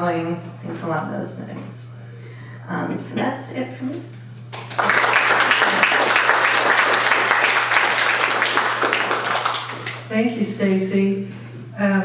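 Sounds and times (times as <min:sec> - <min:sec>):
audience applause: 0:04.5 - 0:10.1.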